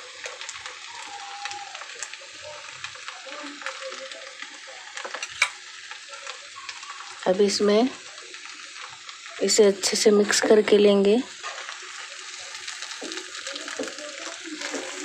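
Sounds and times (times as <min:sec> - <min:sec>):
ghee sizzling on rice: 0:00.0 - 0:15.0
spoon clicking against pan: 0:05.1 - 0:05.6.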